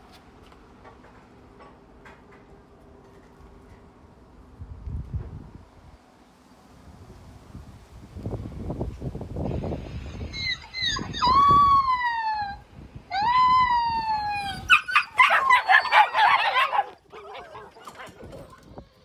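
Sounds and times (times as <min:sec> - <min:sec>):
puppy yelps and cries: 0:10.4 - 0:12.6, 0:13.2 - 0:18.7
puppies howling through phone speaker: 0:10.4 - 0:18.8.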